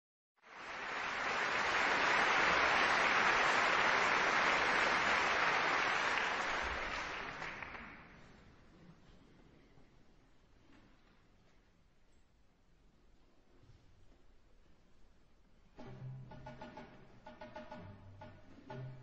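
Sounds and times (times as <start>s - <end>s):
audience applauding: 0.4s - 8.2s.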